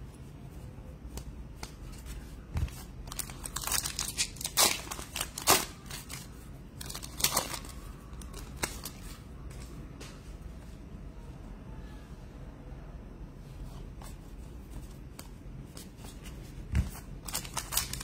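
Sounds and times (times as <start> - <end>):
foil wrapper tearing and crinkling: 3.1 - 6.2, 17.2 - 18.0.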